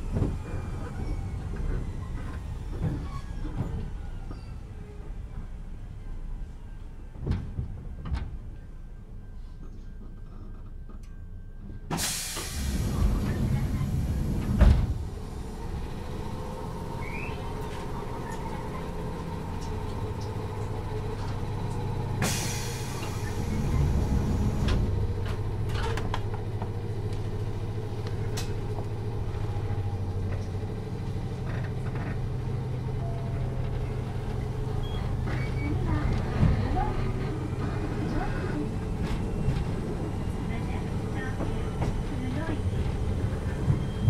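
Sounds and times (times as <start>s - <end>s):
train equipment hum: 0.0s - 44.0s
train running sound: 6.8s - 44.0s.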